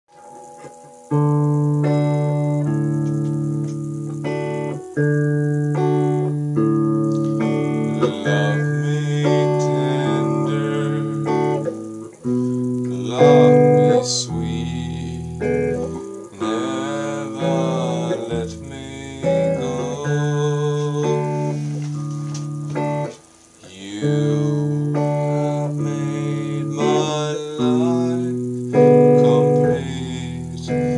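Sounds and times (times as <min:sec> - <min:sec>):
guitar chords: 0:00.1 - 0:30.9
man singing: 0:07.7 - 0:11.7, 0:12.9 - 0:22.0, 0:23.6 - 0:30.9.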